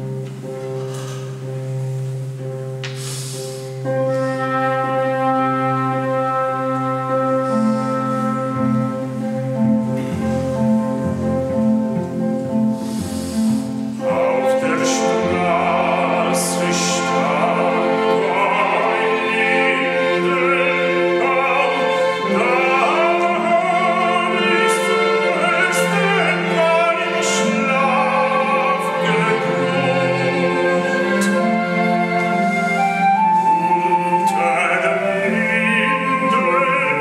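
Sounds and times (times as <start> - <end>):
small orchestra with strings: 0.0 - 37.0
man singing with vibrato: 14.0 - 32.8, 33.6 - 37.0.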